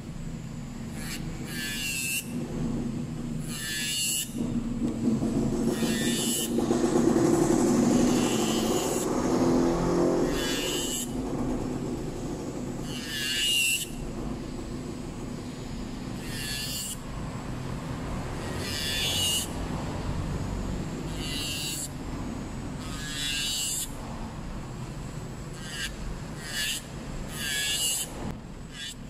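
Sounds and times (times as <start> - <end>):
electric nail drill whirring: 0.8 - 2.4, 3.3 - 17.2, 18.2 - 19.7, 21.0 - 22.0, 22.8 - 24.0, 25.5 - 29.0
sanding bit rasping on nail: 0.9 - 2.4, 3.4 - 4.4, 5.4 - 12.0, 12.7 - 14.0, 16.1 - 17.1, 18.4 - 19.6, 21.1 - 22.0, 22.8 - 24.0, 25.5 - 29.0.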